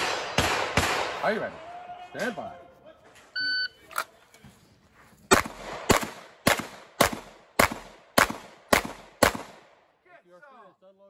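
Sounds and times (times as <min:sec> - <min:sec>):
pistol shots: 0:00.0 - 0:01.4, 0:05.3 - 0:09.8.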